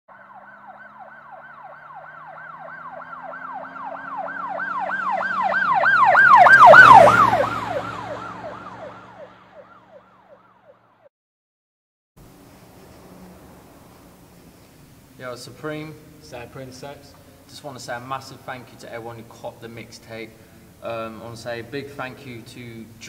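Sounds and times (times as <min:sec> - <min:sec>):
emergency siren yelping: 0:00.1 - 0:11.1.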